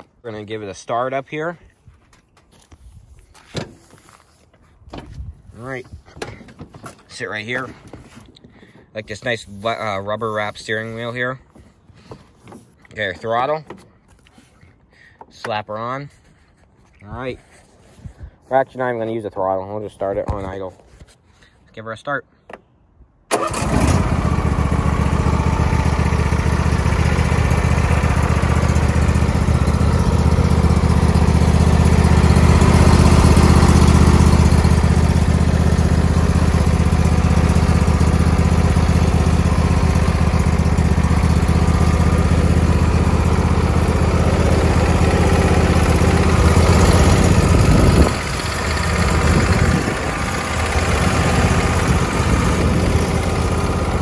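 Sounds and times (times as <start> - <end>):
mower engine idling: 5.6 - 13.8, 23.3 - 54.0.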